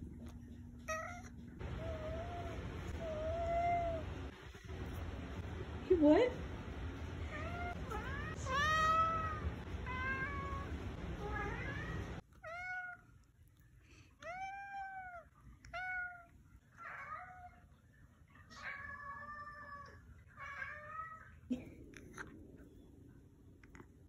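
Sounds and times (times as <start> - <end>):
cat meowing: 7.3 - 13.3, 14.2 - 17.6.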